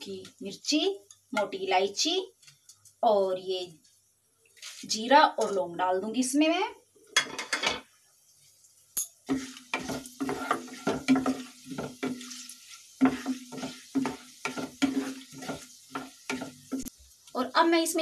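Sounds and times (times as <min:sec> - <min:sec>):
oil sizzling: 0:07.9 - 0:18.0
spatula scraping pan: 0:09.2 - 0:16.9.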